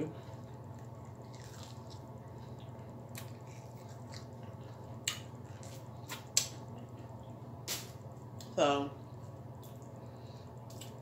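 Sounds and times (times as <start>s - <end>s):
steady low hum: 0.0s - 11.0s
chewing chicken: 0.3s - 7.4s.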